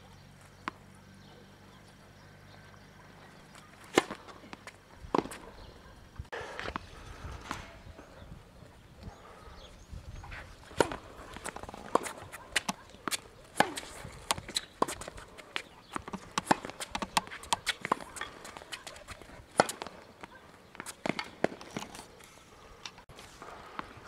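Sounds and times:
tennis ball bouncing: 3.4s - 5.6s, 10.6s - 22.0s
racket hitting tennis ball: 3.5s - 5.6s, 10.6s - 22.0s
footsteps on court: 10.6s - 21.9s.

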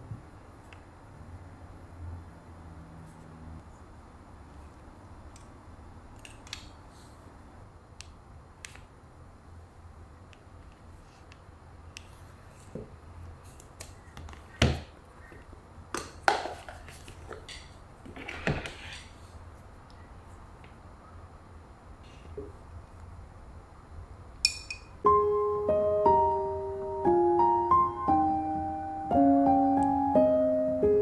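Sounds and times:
objects sliding on table: 18.0s - 19.4s.

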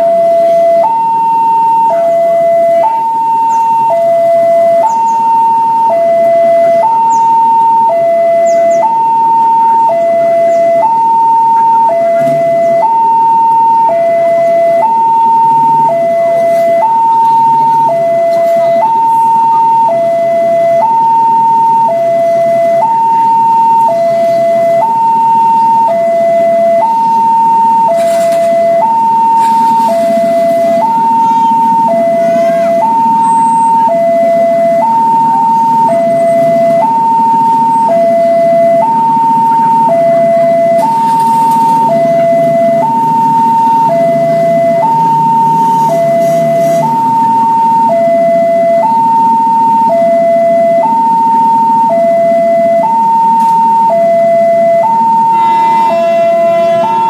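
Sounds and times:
two-tone level-crossing alarm: 0.0s - 57.0s.

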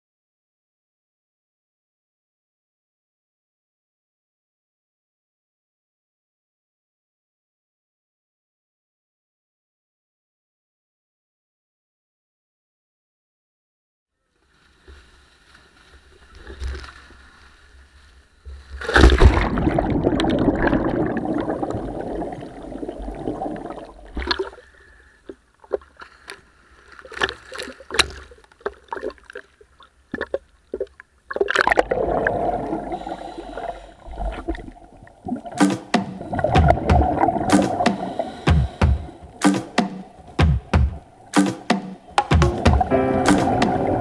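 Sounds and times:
waves slapping against camera: 18.4s - 44.0s
water splashing and churning: 18.6s - 44.0s
underwater rushing and bubbling: 18.8s - 24.8s, 27.0s - 39.4s, 42.4s - 44.0s.

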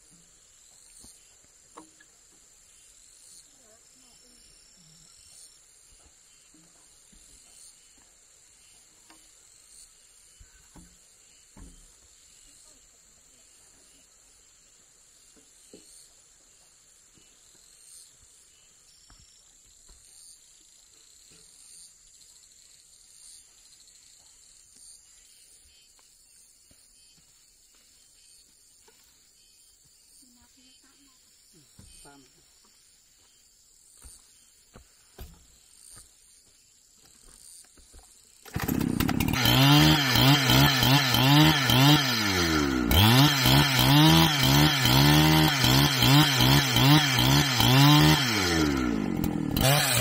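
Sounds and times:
insect chorus: 0.0s - 38.6s.

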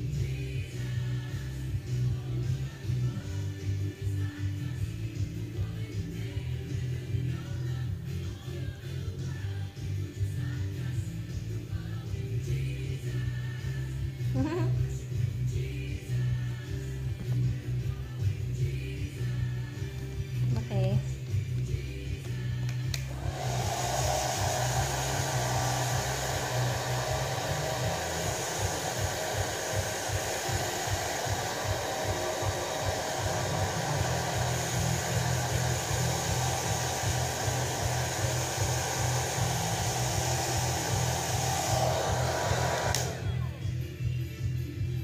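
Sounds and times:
hair dryer blowing: 22.6s - 43.6s.

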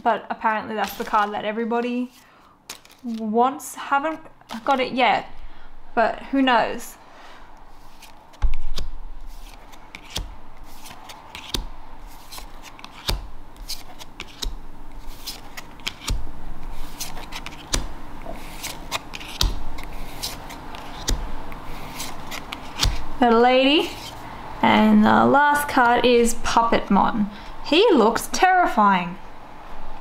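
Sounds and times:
trading cards flipping and clicking: 0.8s - 1.4s, 2.1s - 3.3s, 7.6s - 23.2s.

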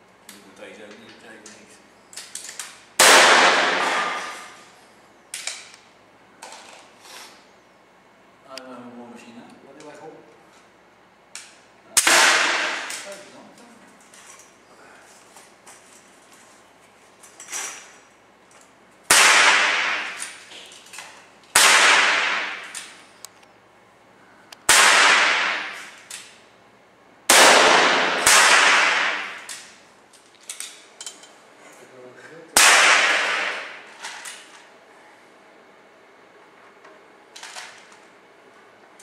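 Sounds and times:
air rifle shots ringing: 3.0s - 4.6s, 12.0s - 13.1s, 19.1s - 20.5s, 21.5s - 23.0s, 24.6s - 26.1s, 27.3s - 29.8s, 32.6s - 33.9s.

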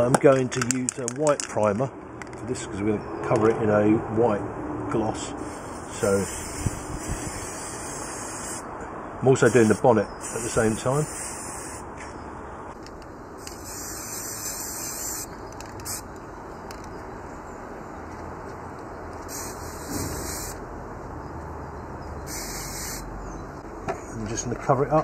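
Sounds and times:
steady background noise: 0.0s - 25.0s
aerosol spray can spraying: 5.4s - 8.6s, 9.5s - 11.8s, 13.4s - 16.0s, 19.3s - 20.6s, 22.3s - 23.0s.

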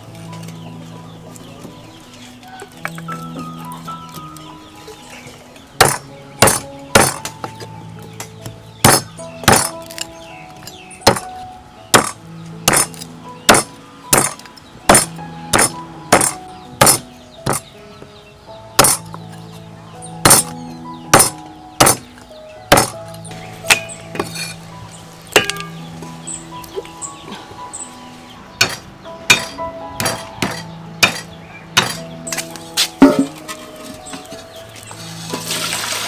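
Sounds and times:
soft background music: 0.0s - 36.0s
cleaver chopping meat on wood: 5.8s - 7.6s, 8.4s - 10.0s, 11.0s - 11.3s, 12.0s - 17.7s, 18.8s - 19.1s, 20.2s - 22.1s, 22.7s - 23.0s, 23.7s - 24.4s, 28.6s - 33.4s.

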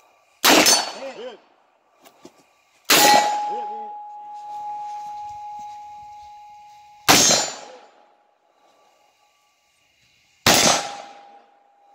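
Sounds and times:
pistol shot: 0.4s - 1.0s, 7.1s - 7.8s, 10.4s - 11.4s
steel target ringing: 2.9s - 8.0s.

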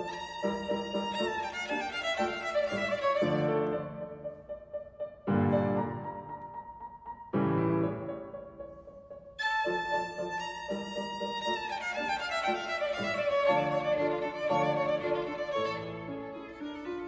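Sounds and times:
violin playing: 0.0s - 4.6s, 9.4s - 17.0s
piano chords: 0.0s - 17.0s.

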